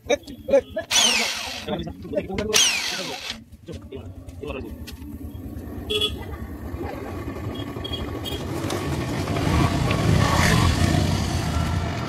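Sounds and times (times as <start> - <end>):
vehicle engine passing by: 4.3 - 12.0.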